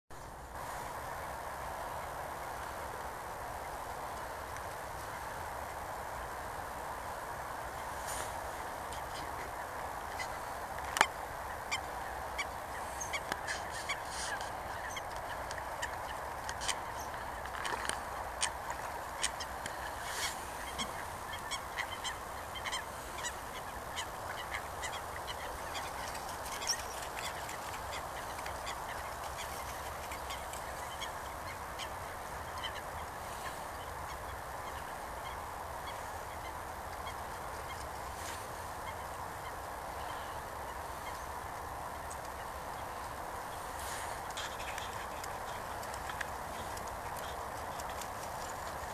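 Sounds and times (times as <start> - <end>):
geese calling: 8.9 - 34.9.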